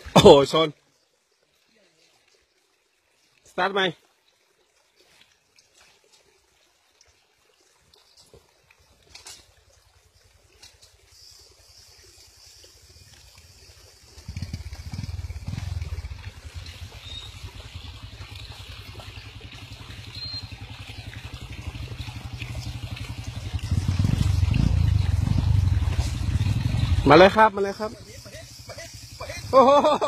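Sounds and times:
motorbike engines rumbling: 14.1s - 30.0s.

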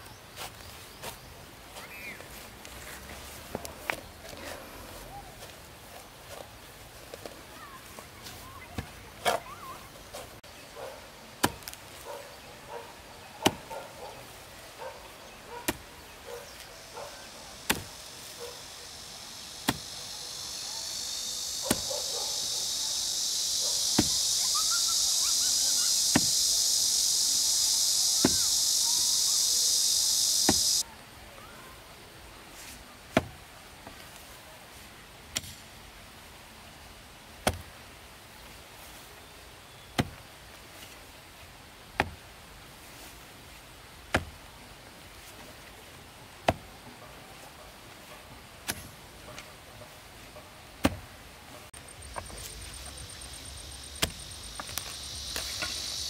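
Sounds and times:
high-pitched insect drone: 17.2s - 30.8s, 51.9s - 56.0s
hand tool chopping strikes: 17.6s - 17.9s, 19.6s - 20.0s, 21.6s - 21.9s, 23.8s - 24.3s, 26.1s - 26.4s, 28.2s - 28.5s, 30.4s - 30.8s, 50.8s - 51.0s, 54.0s - 55.8s.

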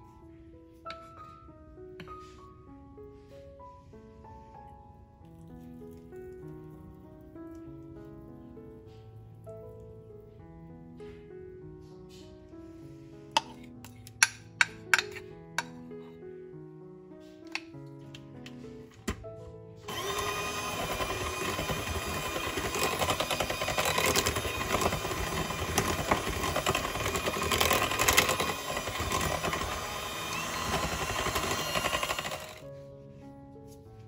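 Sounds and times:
electric hand mixer running: 19.9s - 32.6s.

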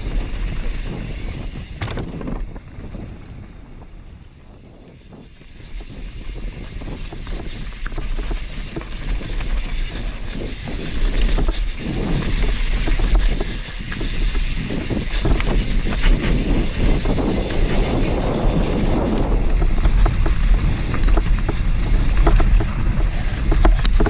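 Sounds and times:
bike tyres rumbling on dirt: 0.0s - 24.0s
wind buffeting microphone: 0.0s - 24.0s
bike knocking over bumps: 1.7s - 3.2s, 6.7s - 24.0s.

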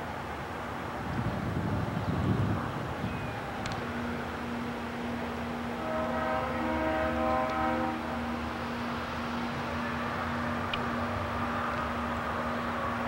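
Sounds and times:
low rumble of train moving off: 0.0s - 13.0s
distant locomotive horn: 3.9s - 13.0s.

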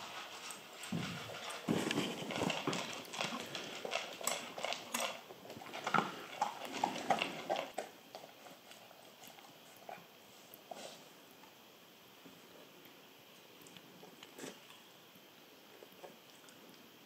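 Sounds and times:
dog chewing: 0.0s - 10.1s.

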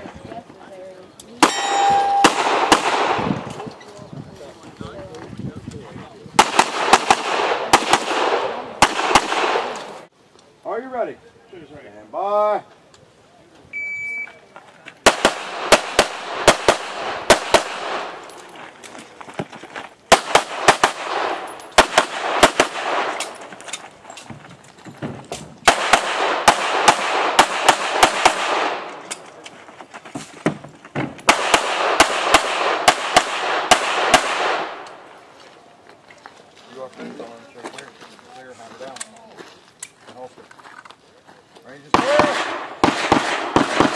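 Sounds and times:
pistol firing rapid shots: 2.2s - 3.3s, 6.4s - 9.8s, 15.1s - 18.2s, 20.1s - 23.2s, 25.7s - 28.8s, 31.3s - 34.8s, 42.0s - 43.9s.

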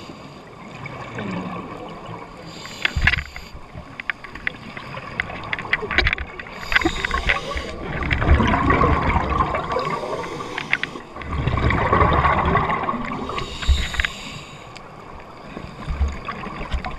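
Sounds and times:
underwater bubbles rushing out: 4.8s - 14.0s.

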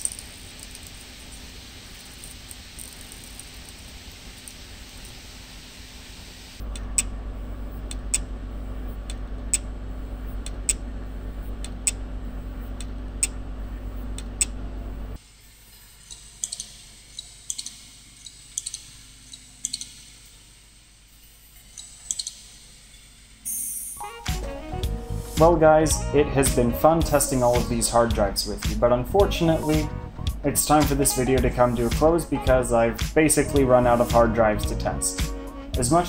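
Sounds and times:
hard drive humming: 0.0s - 23.6s, 24.4s - 36.0s
faint drive ticks and clicks: 6.6s - 14.6s, 16.0s - 20.4s, 21.6s - 22.5s.

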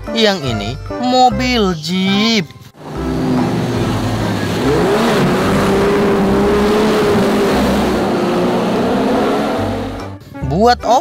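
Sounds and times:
water splashing from wheels: 2.8s - 10.0s
vehicle motor revving: 2.8s - 10.2s.

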